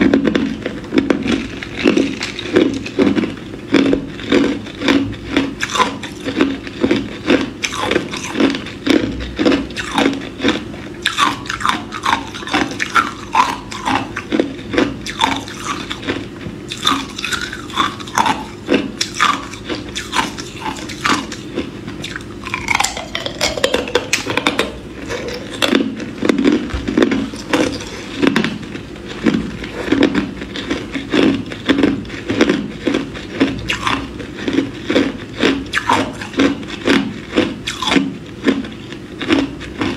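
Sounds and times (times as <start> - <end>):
ice crunching between teeth: 0.0 - 39.9.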